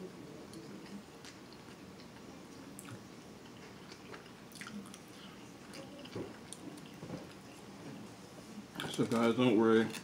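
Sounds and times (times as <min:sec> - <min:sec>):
chewing food: 0:00.4 - 0:07.7.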